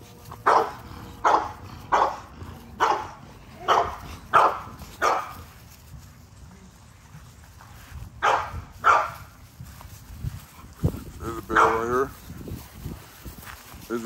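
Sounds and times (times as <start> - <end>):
dog barking: 0.4 - 5.4, 8.2 - 9.2, 11.5 - 11.9.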